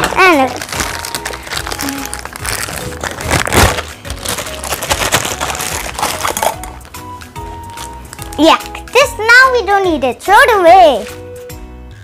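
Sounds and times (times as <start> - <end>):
plastic bag crinkling: 0.0 - 7.0, 7.6 - 8.9
soft background music: 0.0 - 12.0.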